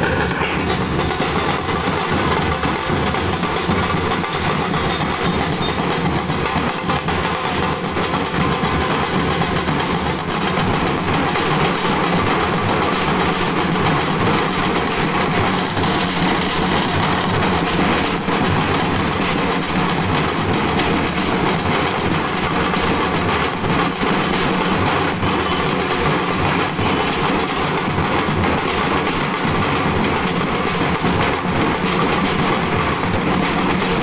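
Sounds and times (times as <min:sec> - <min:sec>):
frame drums beaten with sticks: 0:00.0 - 0:34.0.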